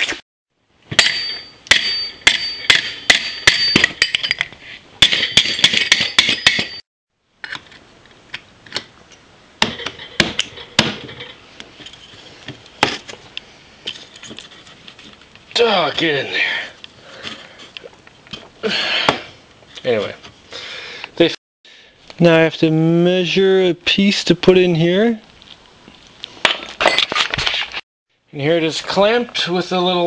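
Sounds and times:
hammer striking metal pipe: 0.9s - 6.8s.

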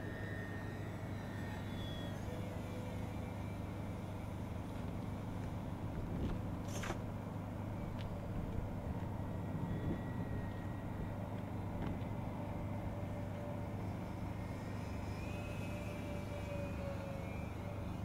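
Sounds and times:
rc plane motors droning: 12.9s - 18.0s.

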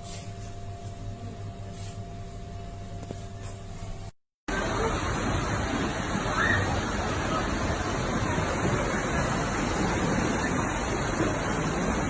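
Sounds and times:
floodwater rushing: 4.5s - 12.0s.

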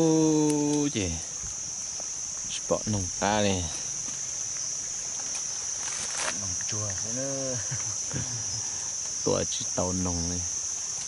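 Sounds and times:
insect chorus drone: 0.0s - 11.0s.

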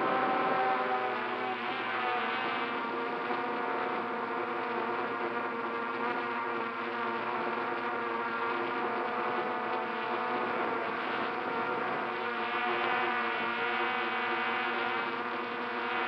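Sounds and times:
drone propellers buzzing: 0.0s - 3.8s.

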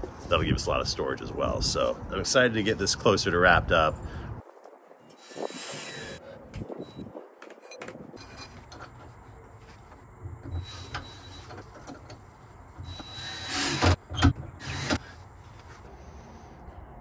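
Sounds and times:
cordless drill driving screws: 5.2s - 6.2s, 12.9s - 14.0s, 14.6s - 15.0s.

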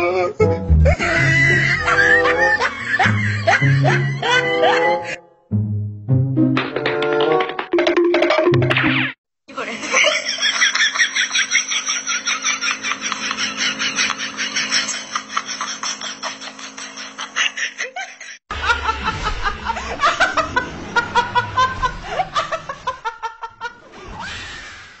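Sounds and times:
people laughing: 0.8s - 5.2s, 9.6s - 23.9s.

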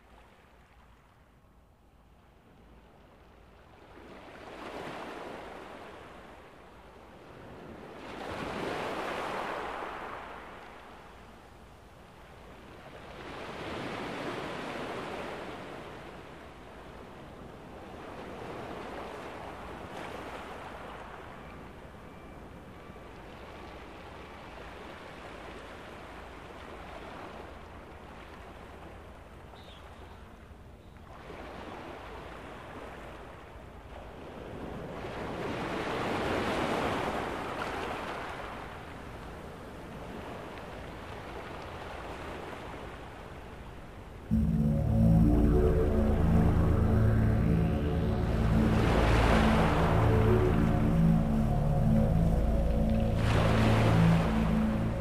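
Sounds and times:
waves washing in and out: 44.3s - 55.0s.

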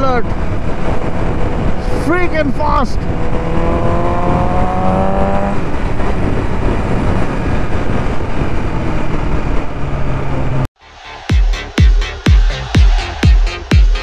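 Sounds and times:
motorcycle engine at speed: 0.0s - 10.6s
electronic dance music: 10.8s - 14.0s.

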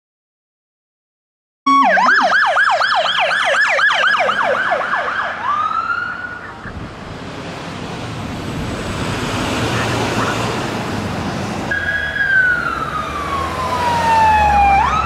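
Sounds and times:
electronic siren yelp and wail: 1.7s - 6.7s, 11.7s - 15.0s
vehicle road noise: 1.7s - 15.0s.

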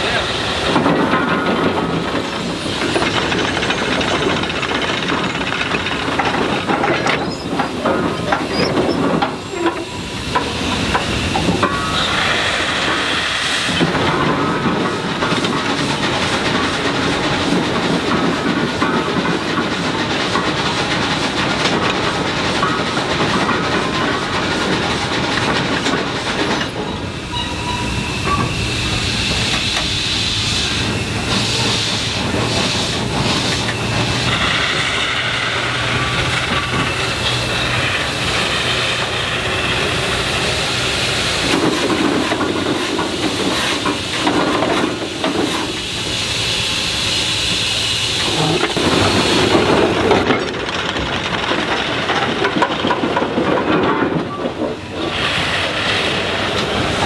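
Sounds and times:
steam engine hissing: 0.0s - 51.2s, 53.1s - 57.0s.

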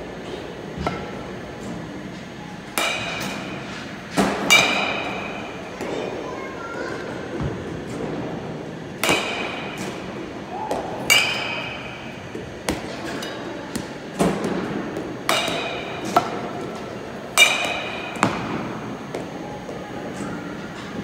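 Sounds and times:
metal bat pinging on ball: 10.7s - 12.8s.

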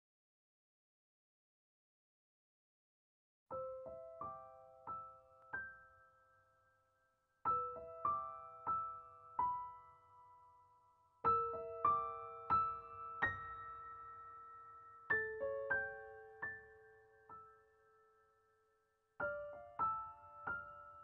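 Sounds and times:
soft solo piano: 3.5s - 6.8s, 7.4s - 21.0s.

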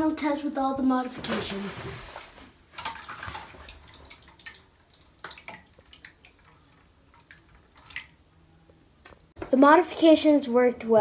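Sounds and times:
water splashing and dripping: 1.2s - 8.3s.

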